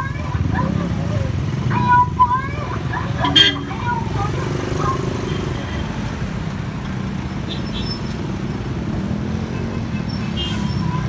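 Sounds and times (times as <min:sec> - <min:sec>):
motorcycle engine running: 0:00.0 - 0:06.1
low traffic noise: 0:00.0 - 0:11.0.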